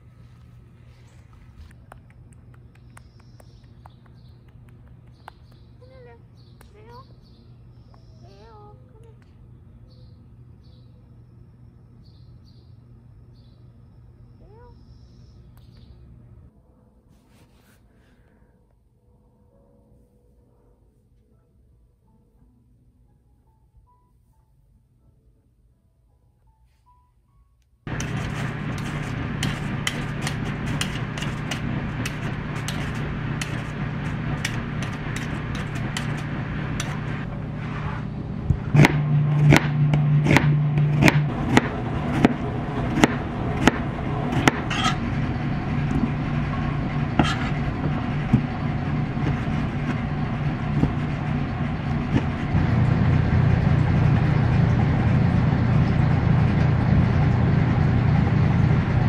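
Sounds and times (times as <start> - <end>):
vehicle engine and road hum: 27.9 - 59.0.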